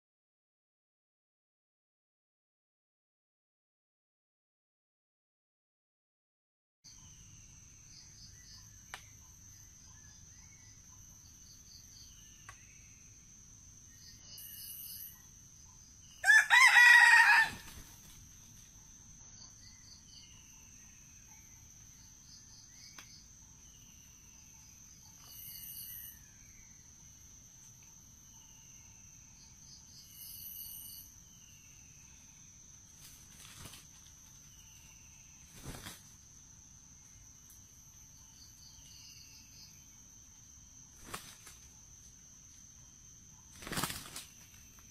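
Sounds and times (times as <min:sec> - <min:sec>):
faint bird chirps: 0:06.9 - 0:36.2, 0:36.8 - 0:42.0
high insect drone: 0:06.9 - 0:44.9
rooster crowing: 0:16.2 - 0:17.8.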